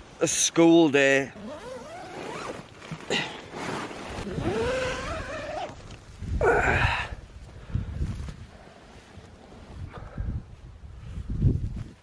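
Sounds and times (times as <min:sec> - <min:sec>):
nylon tent fabric rustling: 0:01.4 - 0:06.2.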